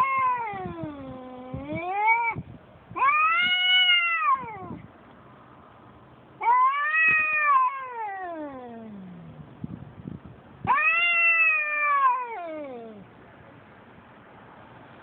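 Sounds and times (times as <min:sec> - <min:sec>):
cats yowling: 0:00.0 - 0:04.9, 0:06.4 - 0:09.4, 0:10.6 - 0:13.1.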